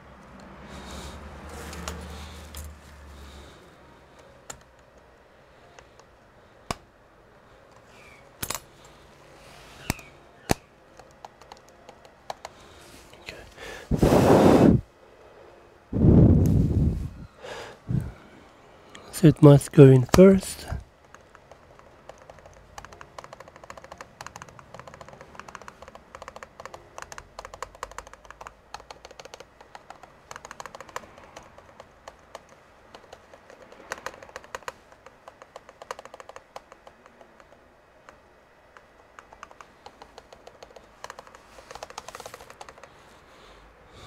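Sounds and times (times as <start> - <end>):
trackpad buttons clicking: 9.8 - 12.6, 21.1 - 42.9.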